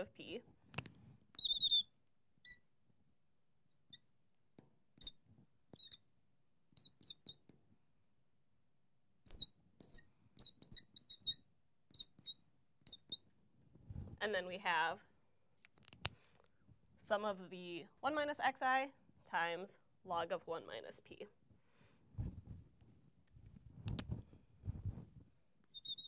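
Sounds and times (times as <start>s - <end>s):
marker squeaking on glass: 1.3s - 2.6s, 5.0s - 6.0s, 6.8s - 7.4s, 9.2s - 13.2s, 25.7s - 26.0s.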